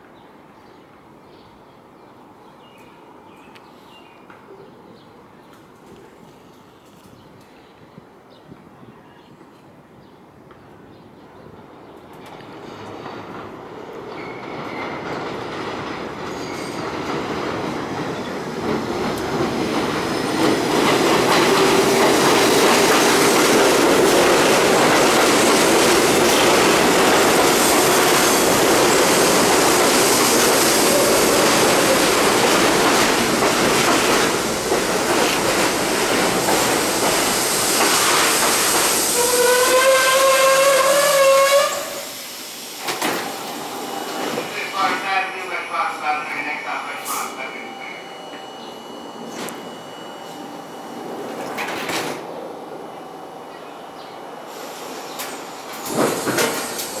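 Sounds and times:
train wheels rumbling on track: 11.7 - 45.2, 54.5 - 57.0
train brakes squealing: 14.1 - 15.1, 16.3 - 16.9, 37.2 - 42.7, 46.6 - 51.7.

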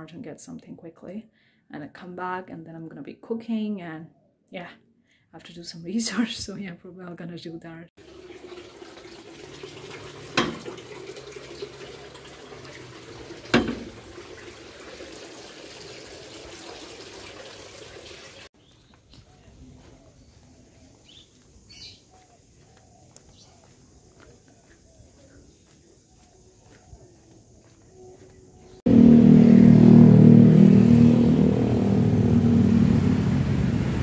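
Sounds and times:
sharp knocks: 13.5 - 14.0.

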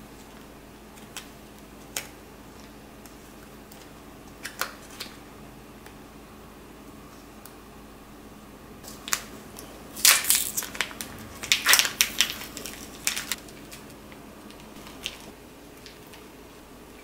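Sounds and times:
plastic wrapper crinkling: 8.8 - 16.3.

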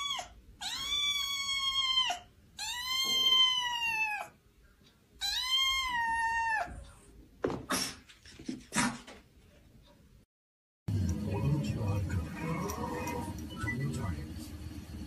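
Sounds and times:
kitten meowing: 0.0 - 4.4, 5.2 - 6.8.

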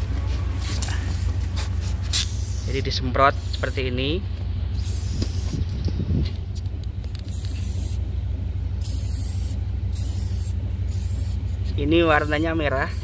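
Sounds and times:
steady low hum: 0.0 - 13.0
aerosol can spraying: 2.2 - 3.8, 4.8 - 5.6, 7.2 - 8.0, 8.8 - 13.0.

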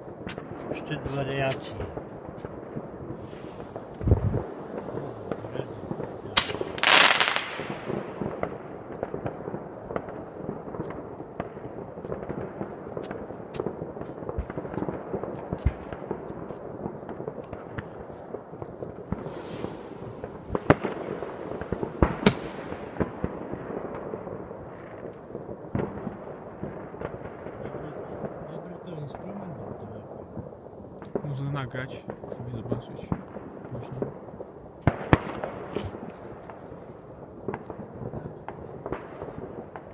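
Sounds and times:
distant fireworks bangs and crackles: 0.0 - 39.9
sharp close firecracker bangs: 0.2 - 28.6
loud hissing firework burst: 3.1 - 8.2, 19.0 - 22.9.

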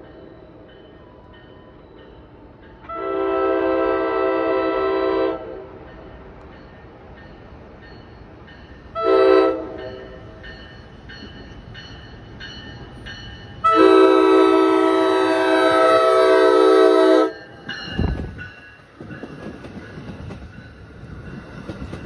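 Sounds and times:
crossing warning bell dinging: 0.0 - 22.0
train horn blasts: 2.8 - 5.8, 9.0 - 10.2, 13.6 - 17.4.

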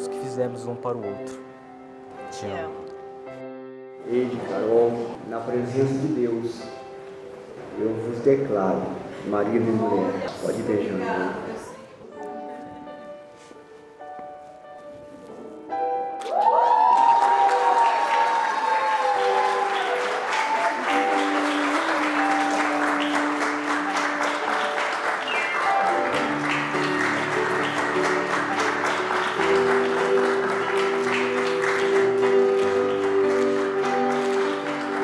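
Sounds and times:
guests applauding: 16.2 - 35.0.

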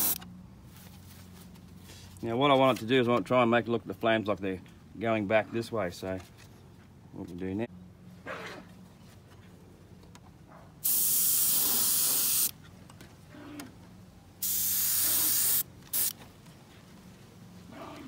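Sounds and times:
airbrush spraying hiss: 0.0 - 0.2, 10.8 - 12.5, 14.4 - 16.1.

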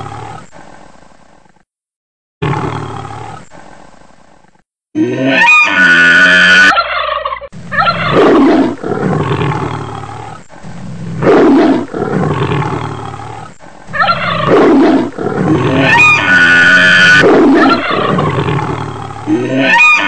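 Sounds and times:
big cat roaring: 0.0 - 0.6, 2.4 - 3.6, 5.0 - 6.7, 7.6 - 20.0
elephant trumpeting: 5.1 - 7.1, 7.7 - 10.2, 10.8 - 20.0.

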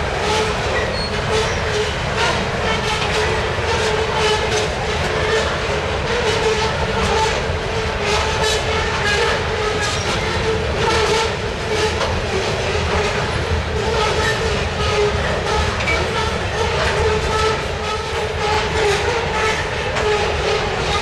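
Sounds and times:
steel wheels clacking over rail joints: 0.0 - 21.0
train cars rumbling: 0.0 - 21.0.

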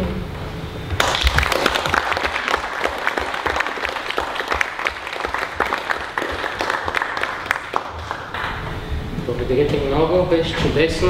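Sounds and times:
audience applause: 1.0 - 8.6.

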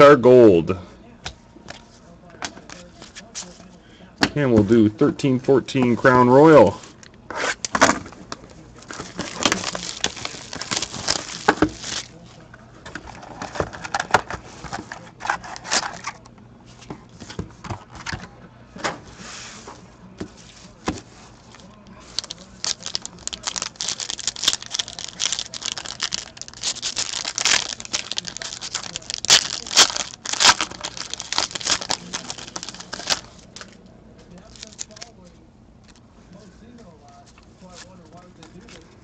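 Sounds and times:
foil wrappers crinkling: 8.8 - 12.4, 21.3 - 36.0.

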